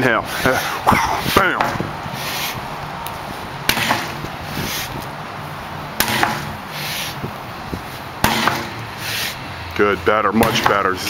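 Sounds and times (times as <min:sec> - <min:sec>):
sledgehammer striking a tyre: 0:03.6 - 0:04.2, 0:06.0 - 0:06.6, 0:08.2 - 0:08.8, 0:10.4 - 0:10.9.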